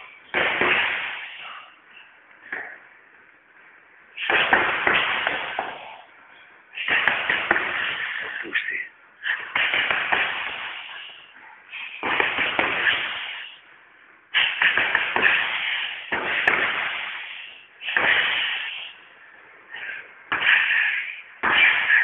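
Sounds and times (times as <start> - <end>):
punches on heavy bag: 0.3 - 1.2, 4.2 - 5.8, 6.8 - 8.2, 9.4 - 10.8, 12.0 - 13.2, 14.4 - 17.1, 17.9 - 18.5.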